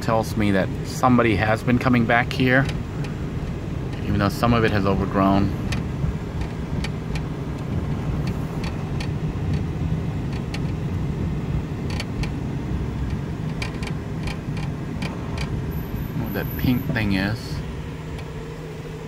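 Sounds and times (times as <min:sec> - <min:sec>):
van engine and tyres rumbling: 0:00.0 - 0:19.0
sharp ticks and clicks: 0:02.3 - 0:04.2, 0:05.6 - 0:11.0, 0:11.8 - 0:12.4, 0:13.0 - 0:15.6.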